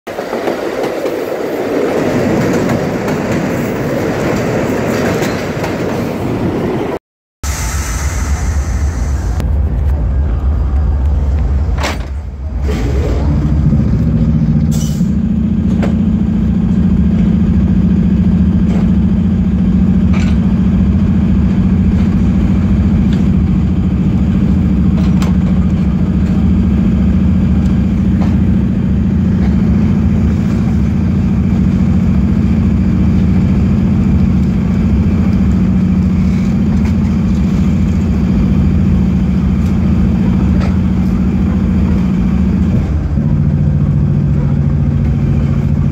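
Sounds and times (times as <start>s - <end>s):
locomotive engine drone: 1.1s - 45.9s.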